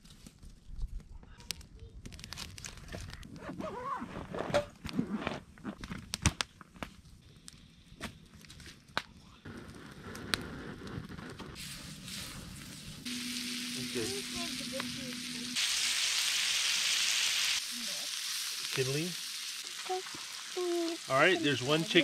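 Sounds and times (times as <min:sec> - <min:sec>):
meat sizzling in a pan: 0:11.6 - 0:22.0.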